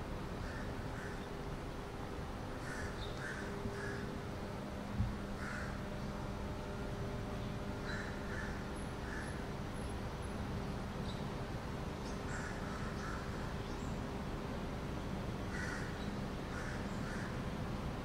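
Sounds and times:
low background hum: 0.0 - 18.0
crows cawing: 0.4 - 1.3, 2.6 - 4.2, 5.4 - 5.9, 7.8 - 9.4, 12.3 - 13.4, 15.5 - 17.4.

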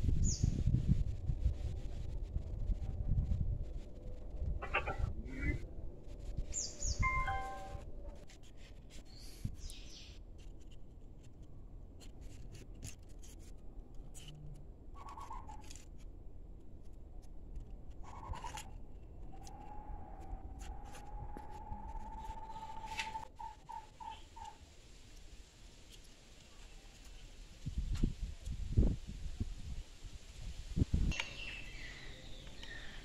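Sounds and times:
long high bird call: 6.8 - 7.8.

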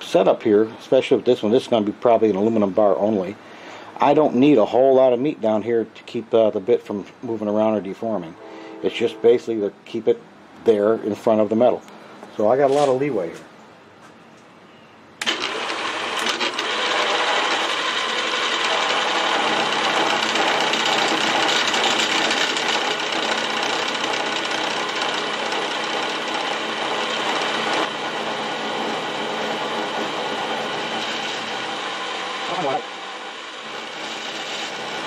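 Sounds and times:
milling machine cutting metal: 15.2 - 35.0.

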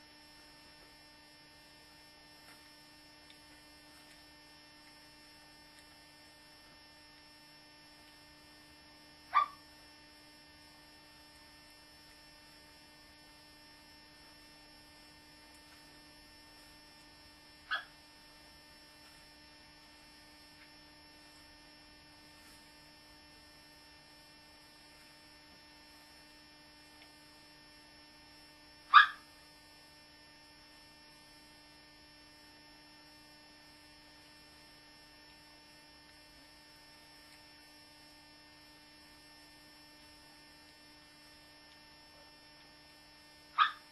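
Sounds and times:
electrical hum: 0.0 - 43.9
dog barking: 9.3 - 9.6, 17.7 - 18.0, 28.9 - 29.3, 43.6 - 43.9.

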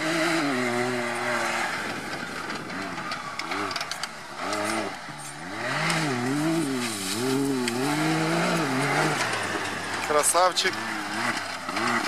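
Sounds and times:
off-road vehicle engine revving: 0.0 - 12.0.

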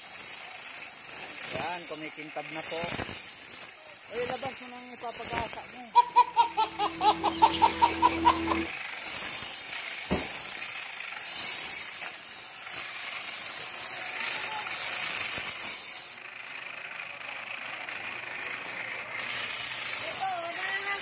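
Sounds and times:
blade grinding on grinding wheel: 0.0 - 21.0
sharp knock: 10.1 - 10.3.

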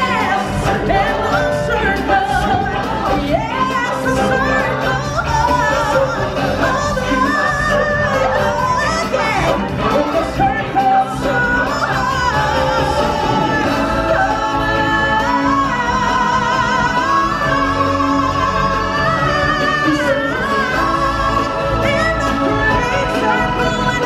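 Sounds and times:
stage-show band music: 0.0 - 24.0.

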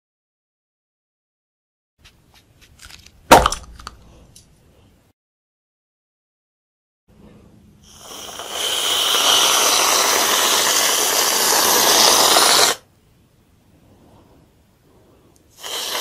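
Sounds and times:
aerosol can spraying hiss: 7.8 - 12.8, 15.6 - 16.0.

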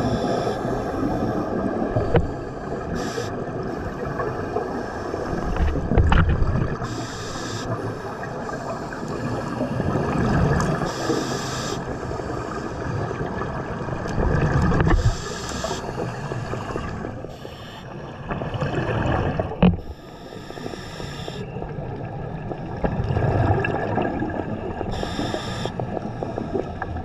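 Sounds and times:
exhaled bubbles gurgling underwater: 0.0 - 27.0
regulator hiss: 6.8 - 7.8, 10.9 - 11.9, 15.0 - 17.9, 19.9 - 21.5, 24.9 - 26.6.

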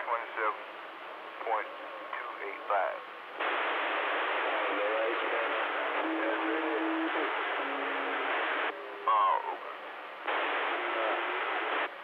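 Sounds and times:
faint distant radio stations: 0.0 - 12.0
radio static hiss: 0.0 - 12.0
loud radio warbling: 4.4 - 9.6.

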